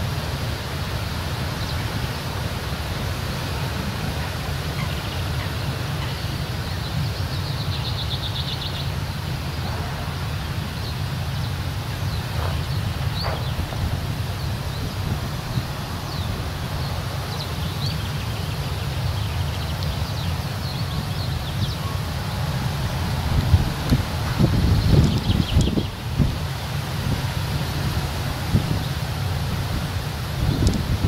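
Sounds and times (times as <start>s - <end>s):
diesel locomotive engine rumble: 0.0s - 31.0s
wind on microphone: 12.0s - 17.5s, 21.3s - 31.0s.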